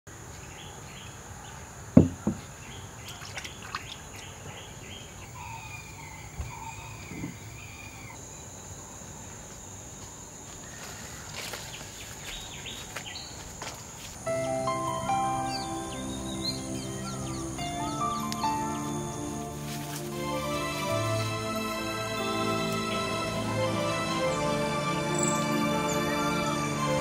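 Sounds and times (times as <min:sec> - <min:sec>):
birds chirping: 0:00.4 - 0:08.6, 0:14.3 - 0:27.0
sharp knocks: 0:02.0 - 0:02.4
insect drone: 0:04.5 - 0:27.0.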